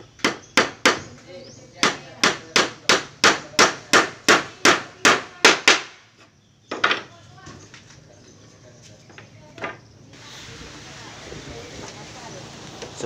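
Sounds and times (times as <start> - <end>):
hammer hitting nail into wood: 0.2 - 1.1, 1.8 - 6.0.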